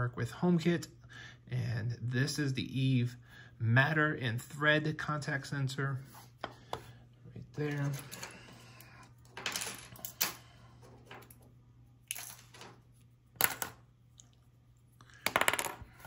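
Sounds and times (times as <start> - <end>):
faint steady hum: 0.0 - 16.0.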